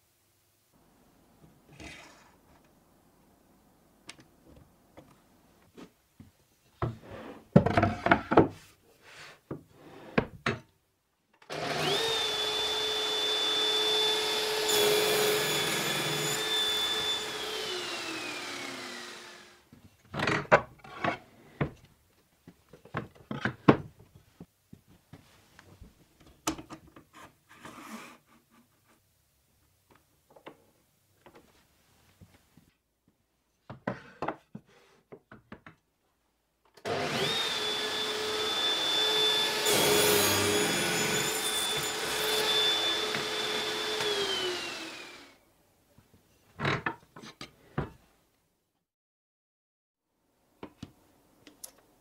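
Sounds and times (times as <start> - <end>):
circular saw cutting a board: 11.5 - 19.6, 36.9 - 45.4.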